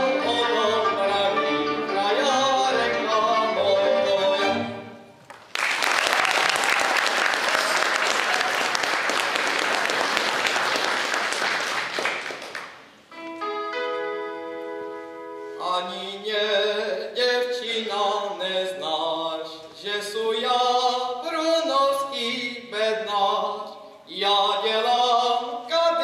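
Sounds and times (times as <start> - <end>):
applause: 5.2 - 13.0.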